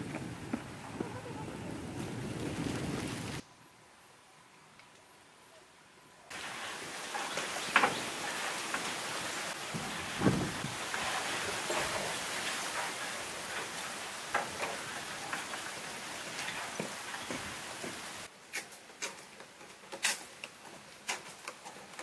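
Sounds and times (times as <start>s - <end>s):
steady hiss: 3.4s - 22.0s.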